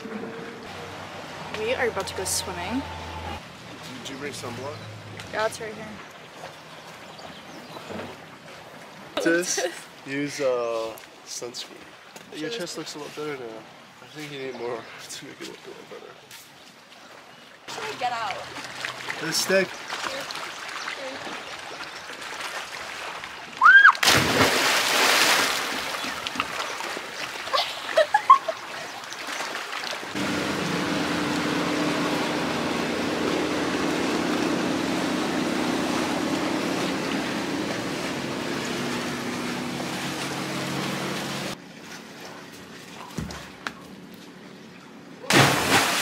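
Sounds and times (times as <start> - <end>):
loud splash into water: 23.6 - 26.1, 45.2 - 46.0.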